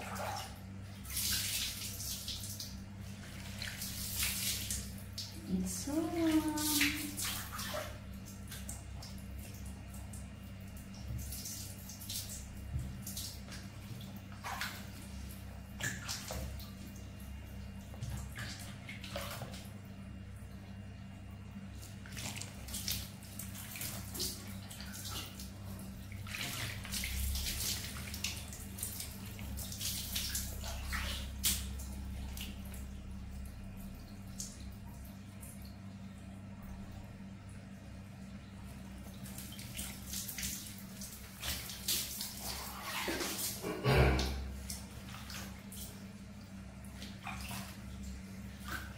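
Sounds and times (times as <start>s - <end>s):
hand rubbing wet fur: 0.0s - 8.0s, 21.8s - 32.6s, 39.2s - 43.7s
water splashing and trickling: 0.0s - 48.9s.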